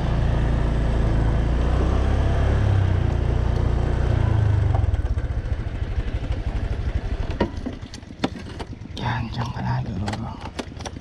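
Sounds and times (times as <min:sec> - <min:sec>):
scooter engine running: 0:00.0 - 0:11.0.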